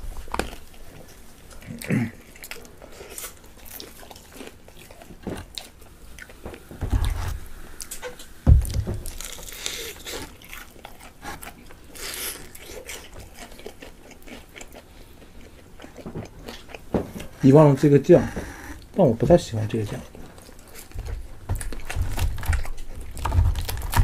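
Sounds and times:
chewing crispy fried chicken: 0.1 - 6.4, 9.1 - 17.8, 19.7 - 24.0
crunches and crackles of tearing chicken: 0.2 - 5.9, 19.8 - 24.0
low thumps: 8.4 - 9.3.

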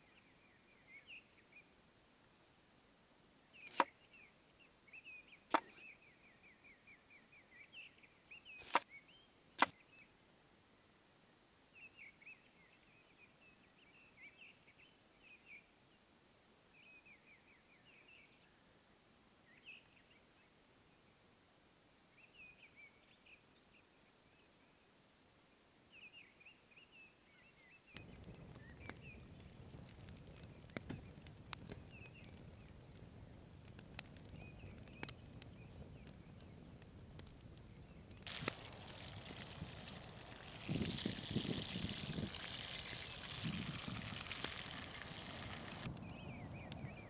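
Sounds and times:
small birds chirping: 25.9 - 47.0.

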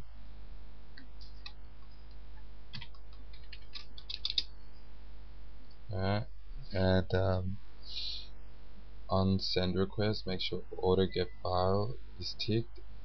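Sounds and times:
steady low hum: 0.0 - 13.0
keyboard typing clicks: 2.7 - 4.5.

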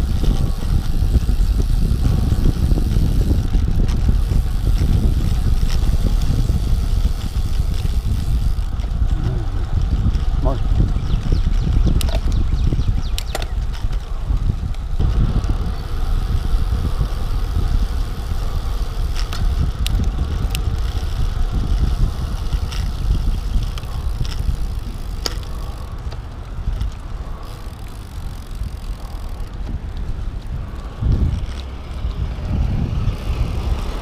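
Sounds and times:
wind rumbling on microphone: 0.0 - 34.0
sharp clicks: 10.8 - 14.0.

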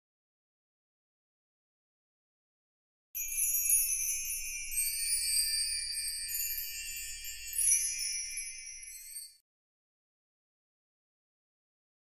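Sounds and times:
twinkling chimes: 3.2 - 9.4.

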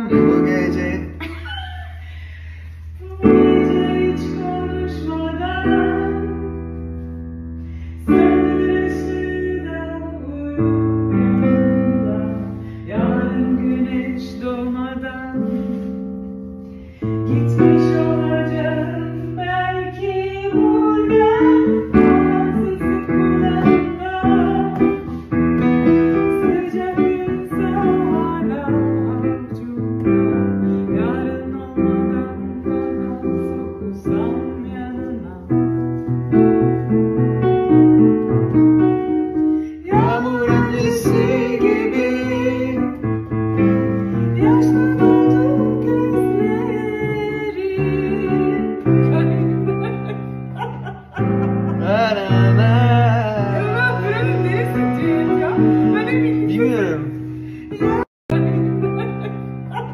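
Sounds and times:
piano playing chords: 0.0 - 59.9
woman singing slowly: 3.0 - 6.5, 39.8 - 42.3, 44.4 - 52.4.

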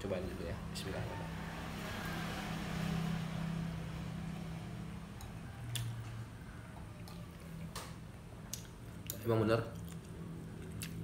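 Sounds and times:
low mechanical hum: 0.0 - 11.0
person chewing food: 5.2 - 6.2, 6.8 - 11.0.

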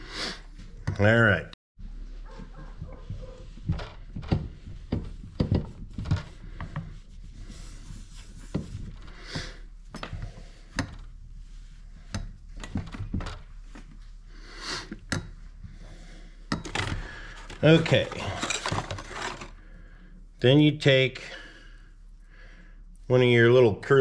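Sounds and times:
cloth rubbing on metal piston: 1.9 - 12.6
piston knocks and clicks in vise: 3.6 - 6.8, 9.9 - 11.1.

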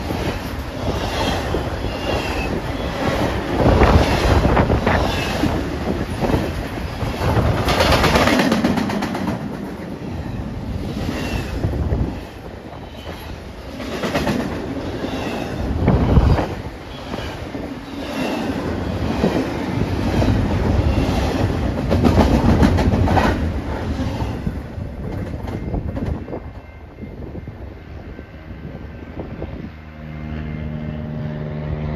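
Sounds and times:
train wheels clattering: 0.0 - 9.9.

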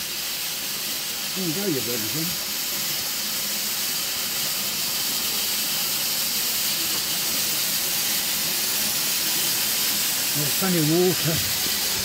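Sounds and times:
steam locomotive hissing: 0.0 - 12.0.

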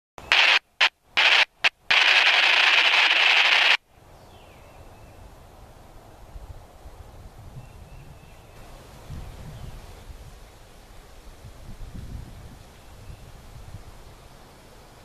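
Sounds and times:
radio static hiss: 0.2 - 3.8
faint outdoor background: 0.2 - 15.0.

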